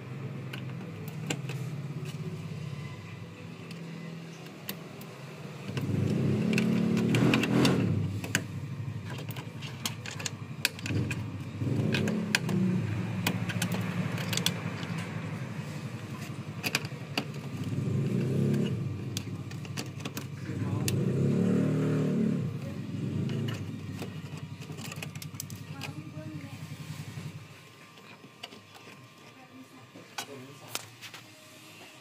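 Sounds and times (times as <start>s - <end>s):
low engine rumble: 0.0s - 30.6s
plastic connectors clicking: 4.4s - 15.2s, 16.2s - 21.0s, 23.2s - 26.1s.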